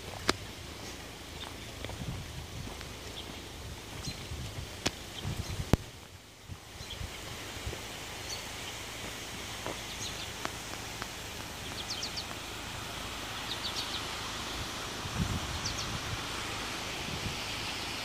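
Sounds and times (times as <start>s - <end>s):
low rumbles on microphone: 0.0s - 7.8s
outdoor background hiss: 0.0s - 18.0s.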